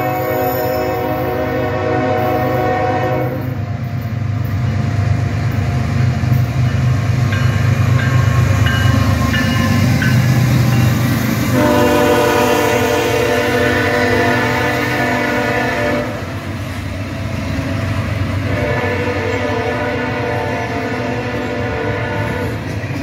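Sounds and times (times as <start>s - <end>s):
train air horn: 0.0s - 3.7s, 11.5s - 16.4s, 18.4s - 22.8s
locomotive engines and wheels: 0.0s - 23.0s.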